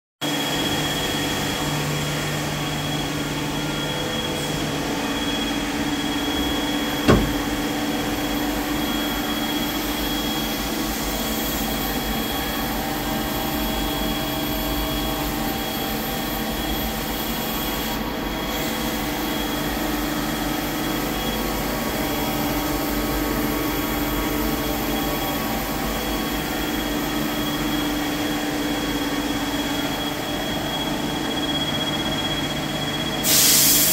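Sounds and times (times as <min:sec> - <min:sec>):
high steady whine: 0:00.3 - 0:13.4
lathe mechanical hum: 0:00.4 - 0:33.3.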